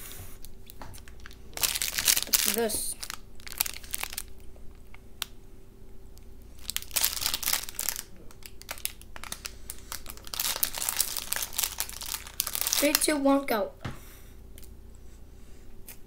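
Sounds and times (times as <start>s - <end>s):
plastic snack wrapper crinkling: 0.4s - 5.3s, 6.6s - 13.2s.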